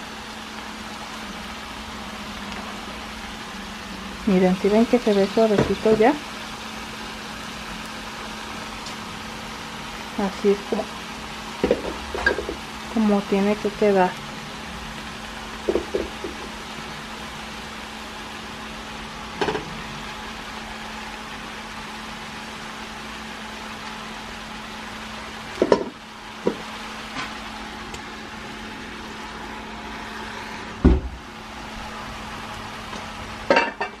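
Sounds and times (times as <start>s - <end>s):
cabbage sizzling in a pan: 0.0s - 34.0s
heavy thump: 30.8s - 31.2s.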